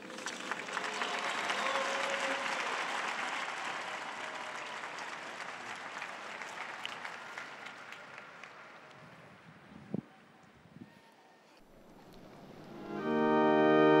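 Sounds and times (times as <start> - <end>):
crowd applauding and cheering: 0.0 - 9.5.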